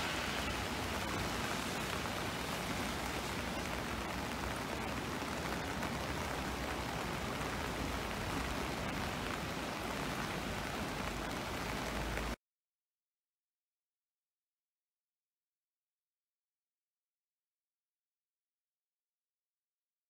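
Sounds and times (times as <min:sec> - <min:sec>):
heavy rain: 0:00.0 - 0:12.4
rushing floodwater: 0:00.0 - 0:12.4.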